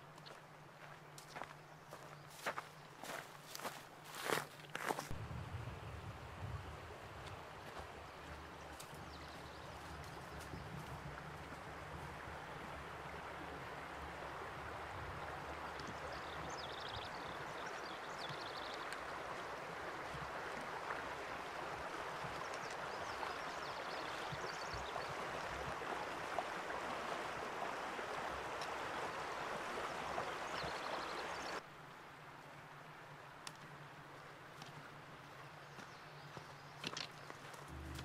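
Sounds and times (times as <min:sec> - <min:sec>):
water running over stones: 0:07.1 - 0:31.6.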